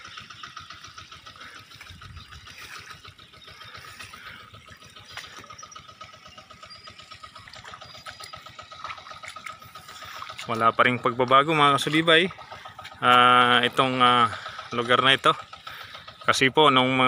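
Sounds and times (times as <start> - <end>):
low uneven rumble: 0.0 - 17.0.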